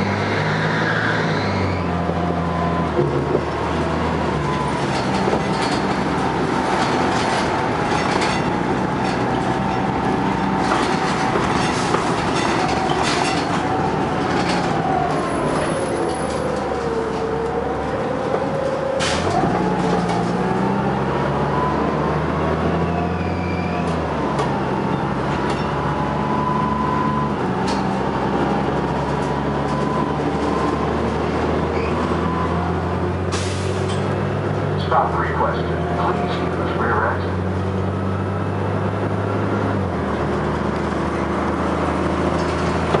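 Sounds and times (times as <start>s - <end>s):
bus engine whine: 0.0s - 43.0s
road noise: 0.0s - 43.0s
rattles and knocks: 10.6s - 14.8s.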